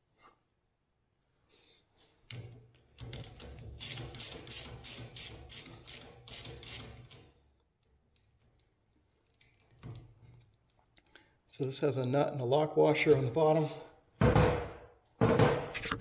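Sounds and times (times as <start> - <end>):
socket ratchet clicking: 3.2 - 7.0.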